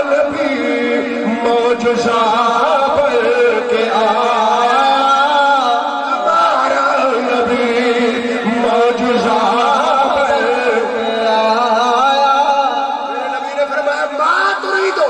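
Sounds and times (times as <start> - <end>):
man chanting through loudspeaker: 0.0 - 15.0.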